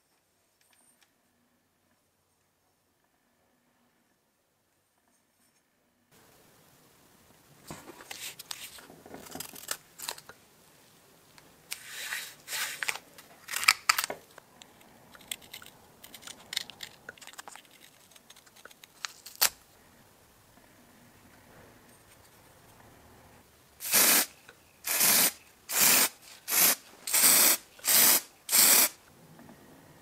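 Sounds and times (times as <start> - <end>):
tape rustling: 7.7 - 10.3, 11.7 - 14.4, 15.2 - 19.6.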